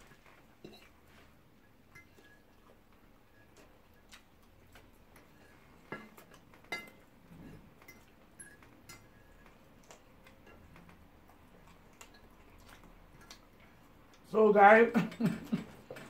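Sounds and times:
fork clinking on ceramic plate: 5.9 - 7.0.

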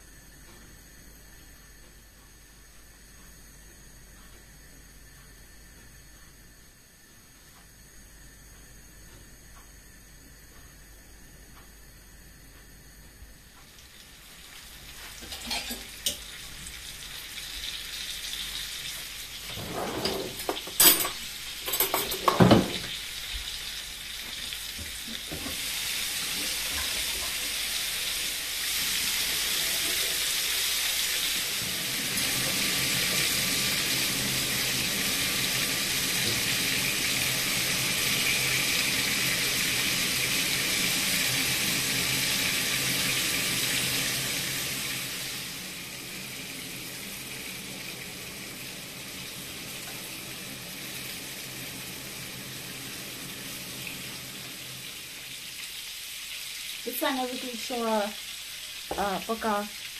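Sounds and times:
cutlets sizzling in oil: 13.6 - 19.6, 20.3 - 59.9.

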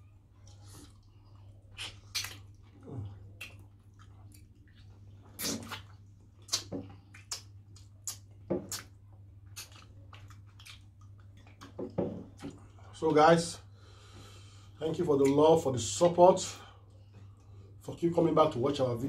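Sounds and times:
steady low hum: 0.0 - 19.0
lip smacking and chewing: 0.1 - 11.8.

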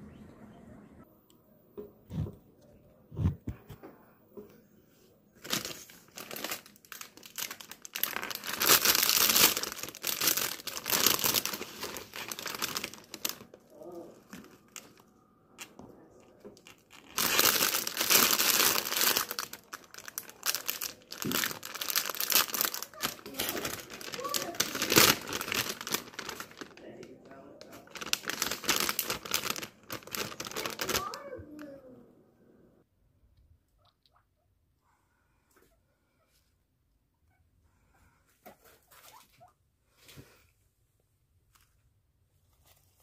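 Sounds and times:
plastic bag crinkling: 5.4 - 31.3.

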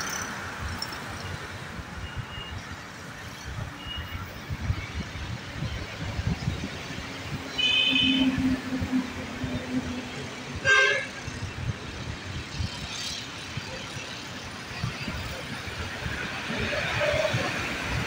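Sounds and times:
wind buffeting microphone: 3.6 - 18.0
vehicle horn: 7.6 - 8.5, 10.6 - 11.2.

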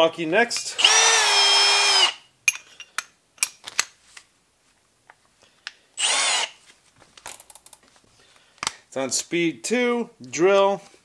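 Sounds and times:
cordless drill motor whine: 0.8 - 2.2, 6.0 - 6.6.

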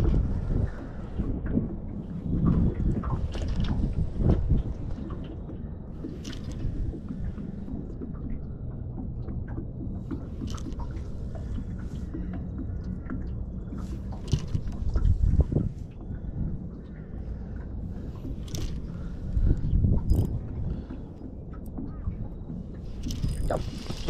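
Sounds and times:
wind on microphone: 0.0 - 8.6, 13.7 - 24.0
water around boat hull: 0.0 - 24.0.

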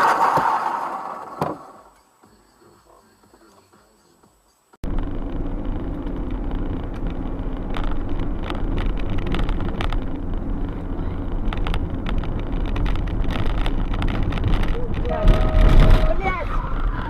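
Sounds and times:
car engine and tyre noise: 0.0 - 17.0.

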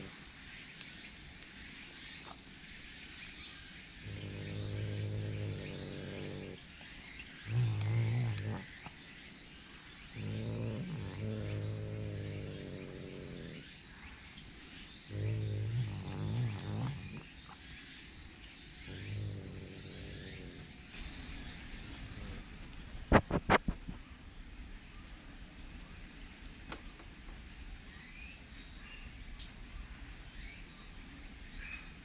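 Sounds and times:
cat growling low: 4.0 - 9.0, 10.1 - 13.8, 15.0 - 17.6, 18.8 - 22.4.

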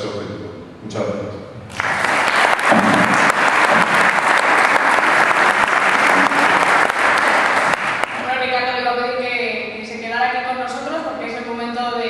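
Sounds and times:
audience applauding: 1.7 - 8.4.

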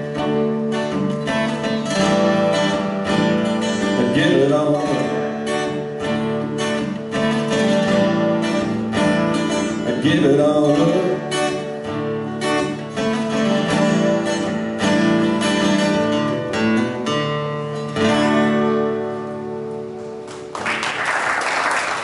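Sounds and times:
acoustic guitars playing: 0.0 - 20.9
audience applause: 20.3 - 22.0.

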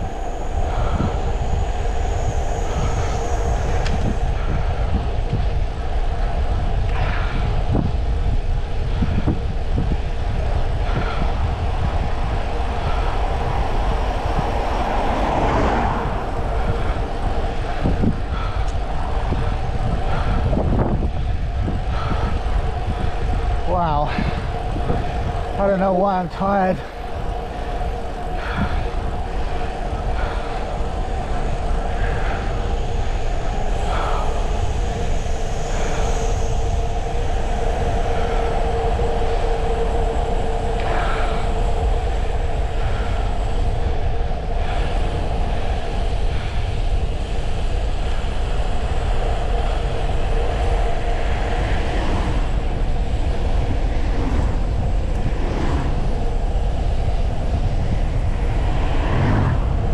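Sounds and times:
bicycle tyre noise: 0.0 - 59.9
wind rushing over microphone: 0.0 - 59.9.

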